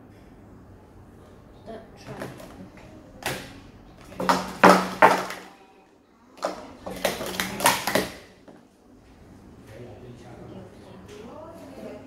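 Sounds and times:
plastic cups clacking: 2.0 - 5.6, 6.4 - 8.6.

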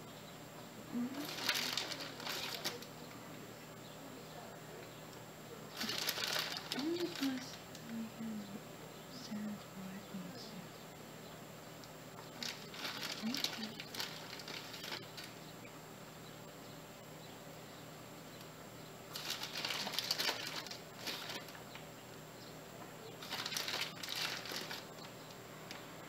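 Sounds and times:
faint hum: 0.0 - 26.0
package rustling: 1.2 - 2.9, 5.8 - 7.8, 12.2 - 15.4, 19.1 - 21.8, 23.2 - 25.8.

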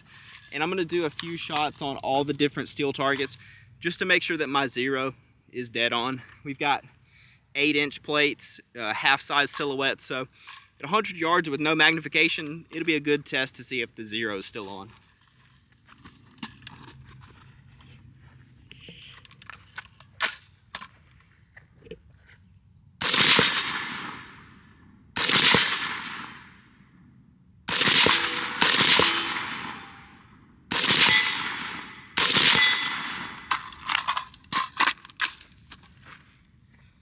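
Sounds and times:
suppressed rifle shots: 23.0 - 24.4, 25.2 - 26.5, 27.7 - 30.0, 30.7 - 33.7.

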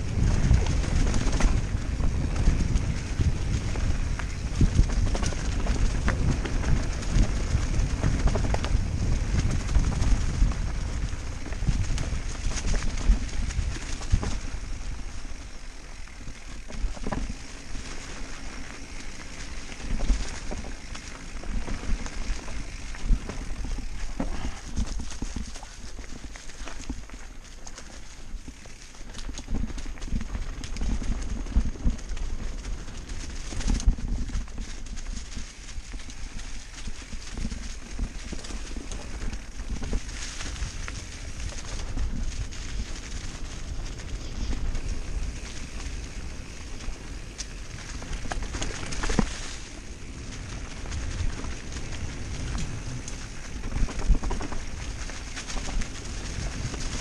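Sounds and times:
wind on microphone: 0.0 - 15.6, 29.1 - 57.0
bike tyres rumbling on dirt: 0.0 - 57.0
bike knocks and rattles: 16.0 - 43.4.

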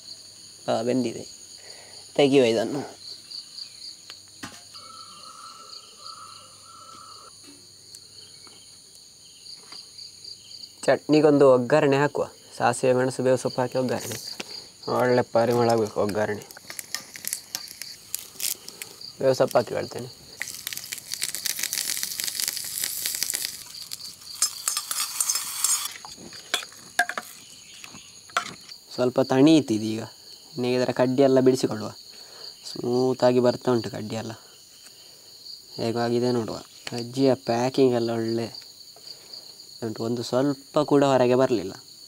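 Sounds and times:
insects chirping: 0.0 - 42.0
spices sizzling in hot oil: 15.5 - 27.5.

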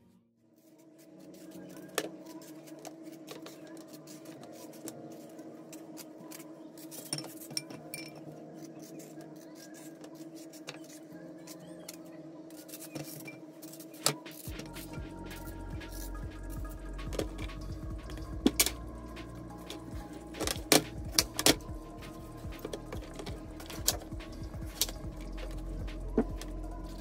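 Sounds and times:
steady hum: 14.5 - 27.0.

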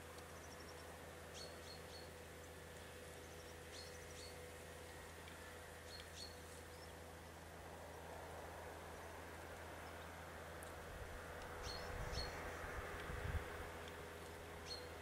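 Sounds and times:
small birds chirping: 0.0 - 8.1, 11.4 - 13.3, 13.9 - 15.0
low steady hum: 0.0 - 15.0.

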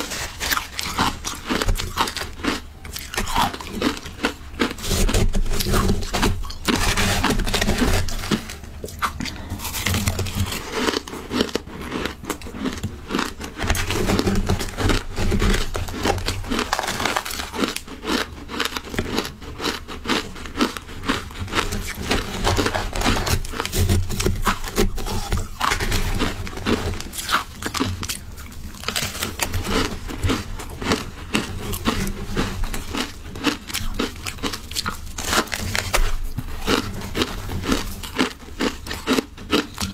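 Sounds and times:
chewing and crunching shaved ice: 0.0 - 39.9.

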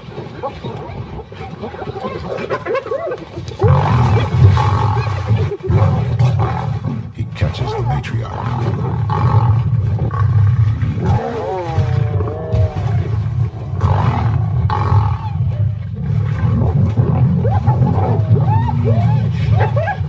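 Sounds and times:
lions growling and snarling: 0.0 - 20.0.

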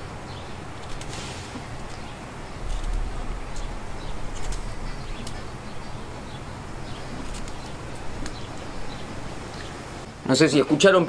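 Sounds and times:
low bumps: 0.0 - 10.1
skewer clicking through squash: 0.7 - 6.3, 6.9 - 9.7.

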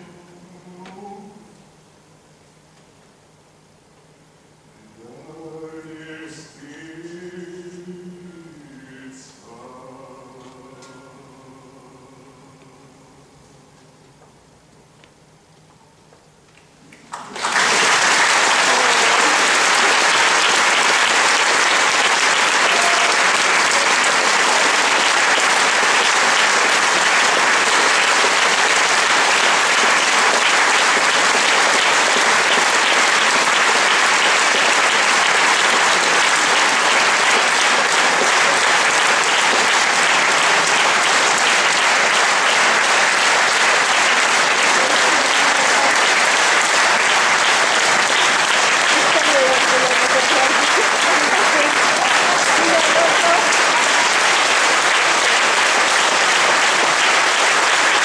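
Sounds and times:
audience applauding: 17.0 - 58.0.

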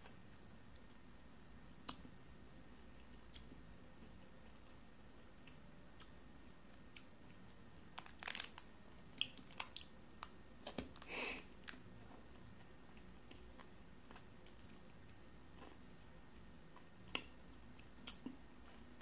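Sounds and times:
foil wrapper crinkling: 8.0 - 8.6.

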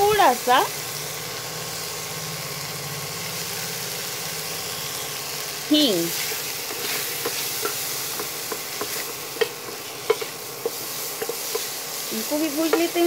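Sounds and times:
food sizzling in a pan: 0.0 - 13.0
spatula tapping a pan: 6.7 - 11.8, 12.6 - 13.0.

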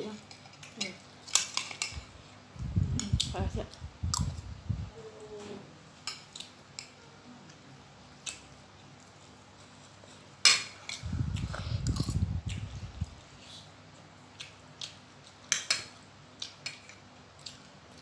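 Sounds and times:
chewing: 10.9 - 15.6, 16.4 - 18.0.

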